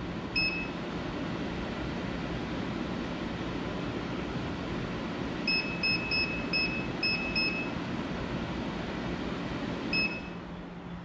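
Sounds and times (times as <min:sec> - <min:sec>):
air conditioner fan whoosh: 0:00.0 - 0:11.0
short beeps: 0:09.9 - 0:10.4.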